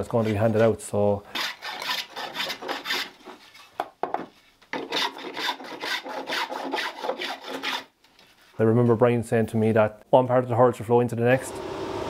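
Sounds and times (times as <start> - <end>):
spokeshave scraping wood: 1.3 - 3.8, 4.7 - 8.6.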